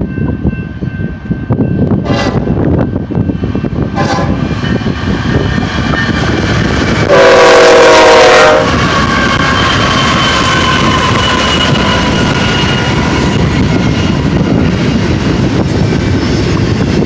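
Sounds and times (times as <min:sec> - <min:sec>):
rumble of oncoming train: 0:00.0 - 0:17.0
locomotive air horn: 0:02.0 - 0:02.5, 0:04.0 - 0:04.4, 0:07.0 - 0:13.5.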